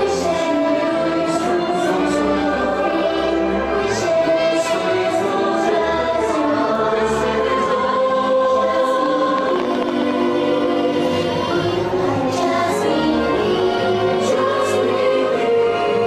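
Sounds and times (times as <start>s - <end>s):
choir singing held notes: 0.0s - 16.0s
music: 0.0s - 16.0s.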